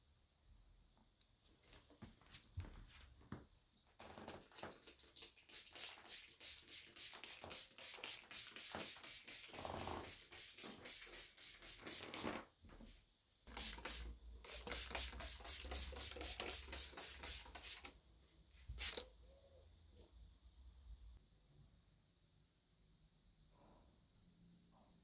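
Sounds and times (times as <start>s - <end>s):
spray bottle hissing puffs: 4.8s - 12.4s, 13.5s - 17.9s, 18.6s - 19.0s.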